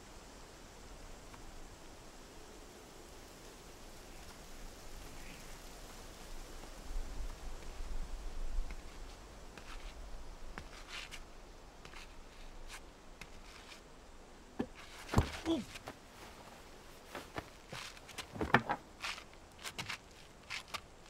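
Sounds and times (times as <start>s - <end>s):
person sitting on wooden bench: 8.6s - 21.0s
footsteps on paved path: 11.8s - 13.8s, 14.6s - 21.0s.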